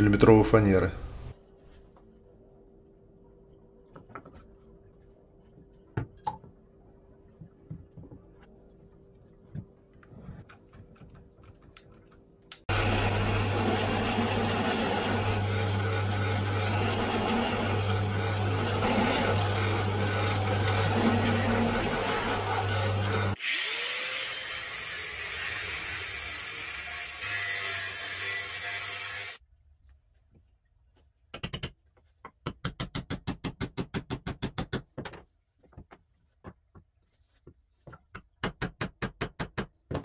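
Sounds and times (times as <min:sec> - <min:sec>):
knocks and clicks of wood handling: 0:03.9 - 0:04.5, 0:07.3 - 0:08.5, 0:34.3 - 0:40.0
drill press motor running: 0:12.7 - 0:23.4.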